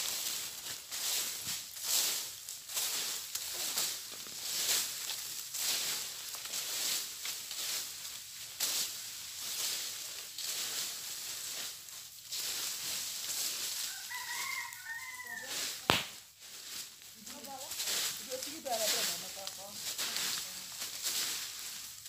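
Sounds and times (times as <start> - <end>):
dry leaves rustling and crackling: 0.0 - 22.0
chicken calling: 13.8 - 15.6.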